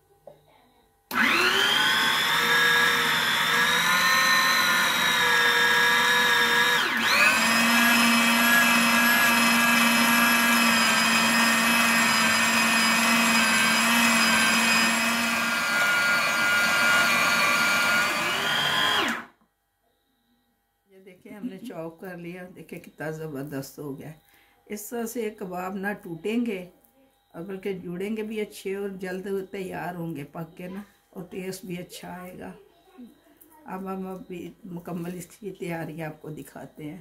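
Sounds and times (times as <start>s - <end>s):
food processor motor whining: 1.1s - 19.3s.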